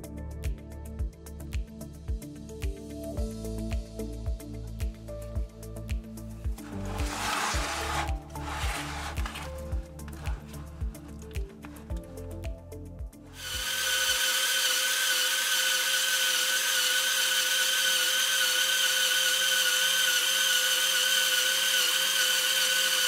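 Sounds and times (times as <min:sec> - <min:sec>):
toy gear train whirring: 0:06.6 - 0:11.9, 0:13.3 - 0:23.0.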